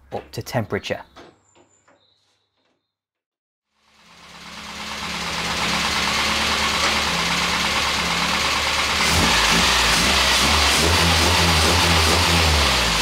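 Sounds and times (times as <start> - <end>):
car engine idling: 3.8 - 13.0.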